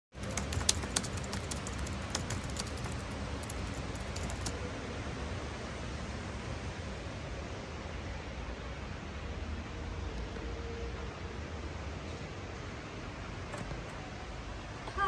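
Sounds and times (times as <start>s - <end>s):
light clicks and taps: 0.2s - 4.6s.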